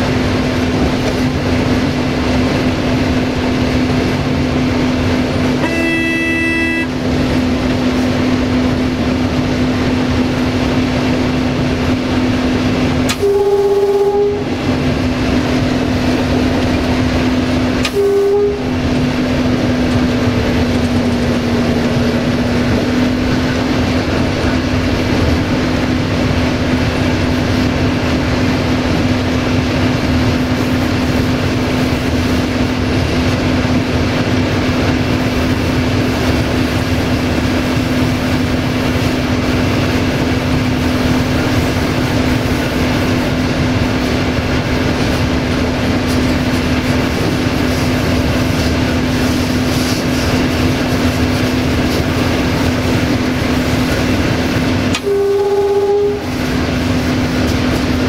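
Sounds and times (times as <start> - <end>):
diesel locomotive engine drone: 0.0 - 58.0
locomotive horn: 5.5 - 7.4, 13.1 - 14.8, 17.8 - 23.1, 54.9 - 56.5.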